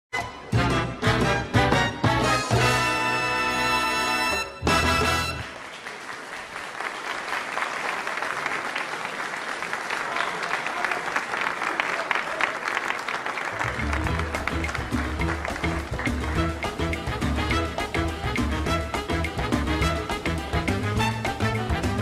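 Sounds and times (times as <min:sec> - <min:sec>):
band playing: 0:00.1 - 0:05.6, 0:13.6 - 0:22.0
crowd applauding: 0:04.7 - 0:22.0.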